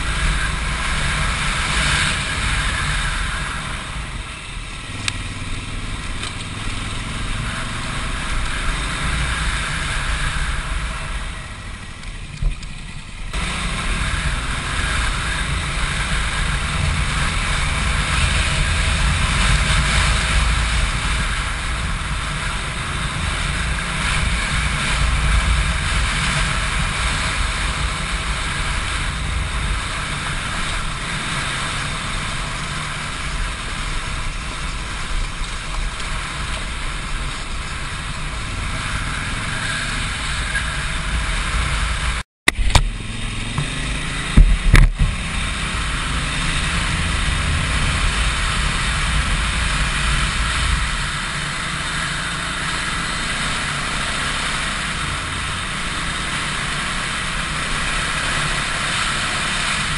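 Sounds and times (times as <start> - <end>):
motorcycle engine running: 0.0 - 59.9
road rumble: 0.0 - 59.9
wind on microphone: 13.3 - 56.2.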